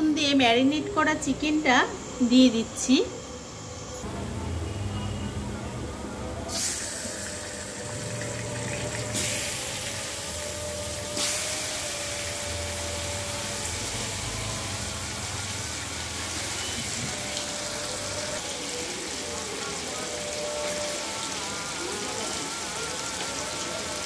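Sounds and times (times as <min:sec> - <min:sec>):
chicken sizzling in hot oil: 0:06.5 - 0:24.0.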